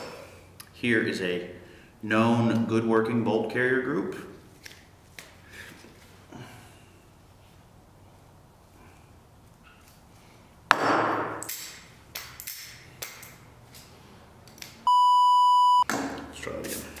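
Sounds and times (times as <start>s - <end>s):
high censor beep: 14.9s - 15.8s.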